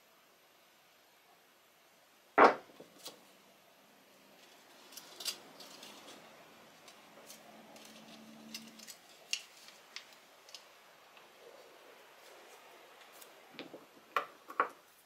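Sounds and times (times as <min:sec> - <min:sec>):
small metal parts clicking: 0:04.4 - 0:06.2, 0:06.8 - 0:10.7.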